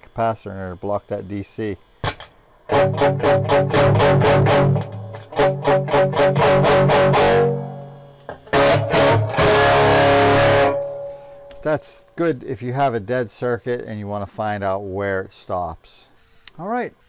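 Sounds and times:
distorted electric guitar: 0:02.0 - 0:11.8.

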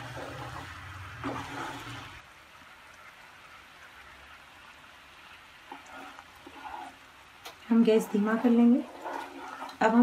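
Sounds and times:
syrup bubbling and sizzling in pan: 0:00.0 - 0:10.0
wooden spatula stirring: 0:05.6 - 0:10.0.

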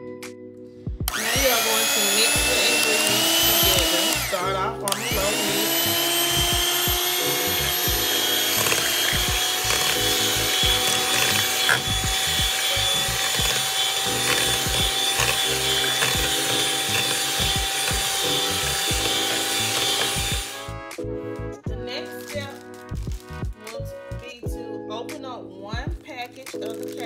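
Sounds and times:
electric hand mixer whine: 0:01.0 - 0:21.0
mixer beaters rattling in bowl: 0:01.1 - 0:20.5.

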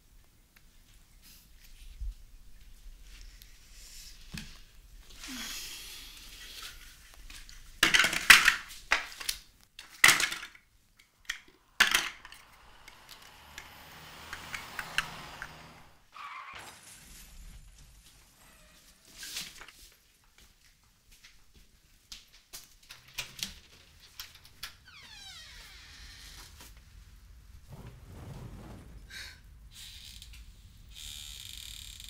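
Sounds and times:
hard objects clattering: 0:07.8 - 0:12.5.

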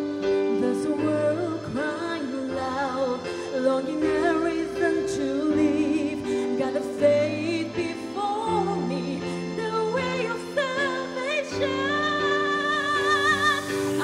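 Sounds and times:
backing music with held chords: 0:00.0 - 0:14.0
woman singing into a microphone: 0:00.0 - 0:14.0.

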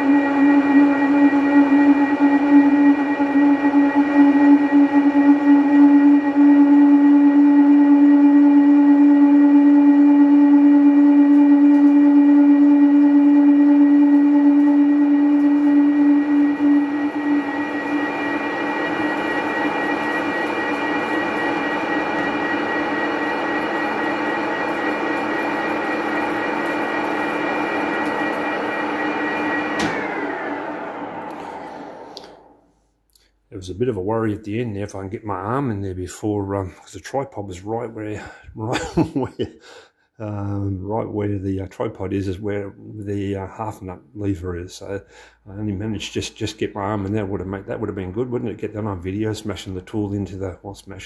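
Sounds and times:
lathe running and cutting: 0:00.0 - 0:32.6
lathe tool ringing hum: 0:00.0 - 0:32.7.

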